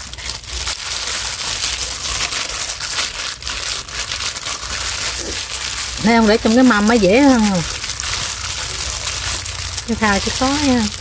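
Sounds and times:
plastic gloves crinkling: 0.0 - 11.0.

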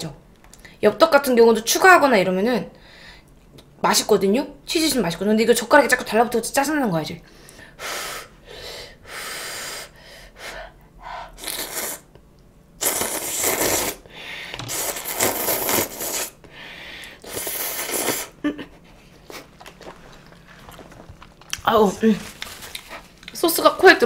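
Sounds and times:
person slurping noodles: 11.4 - 12.1, 12.8 - 14.0, 14.6 - 16.4, 17.2 - 18.4.

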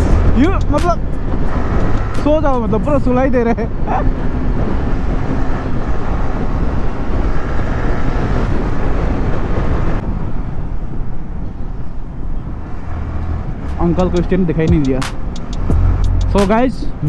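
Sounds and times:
motorcycle engine: 0.0 - 3.1
road noise: 0.0 - 17.0
wind rushing over microphone: 0.0 - 17.0.

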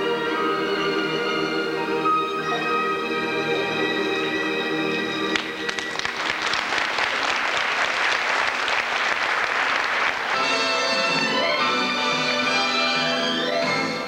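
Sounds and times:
music with long held tones: 0.0 - 7.0, 10.3 - 14.0
audience applauding: 5.3 - 11.4.

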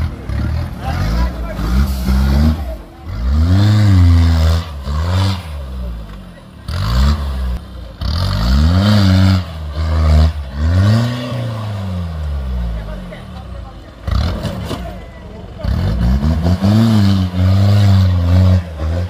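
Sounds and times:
diesel engine revving hard: 0.0 - 19.0.

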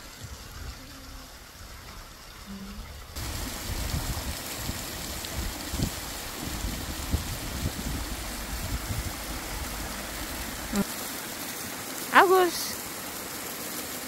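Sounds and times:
low rumbling: 0.3 - 10.8
waterfall roaring: 3.2 - 14.0.

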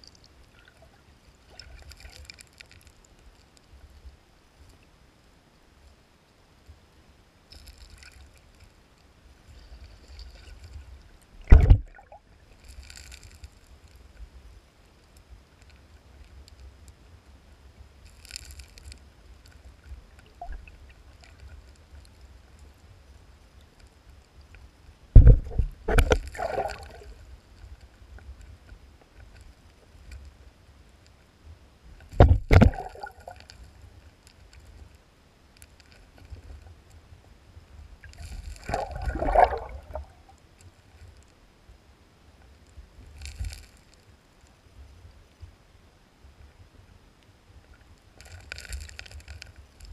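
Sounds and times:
underwater stream rumble with gurgling: 9.2 - 13.1, 18.2 - 23.7, 24.8 - 30.6, 31.4 - 34.1, 36.3 - 41.0
fish thrashing knocks and thumps: 11.4 - 12.0, 25.2 - 26.9, 32.1 - 33.1.

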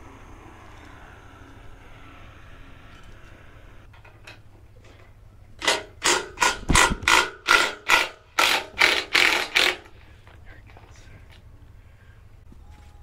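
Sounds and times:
impact driver hammering: 5.6 - 9.8.

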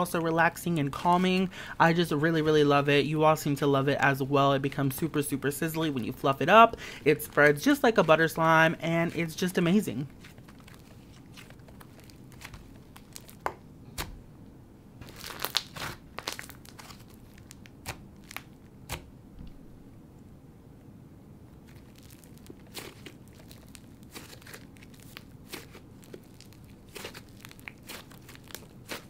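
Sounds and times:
slime crackling and popping: 10.2 - 14.1, 15.0 - 19.1, 21.6 - 29.0.

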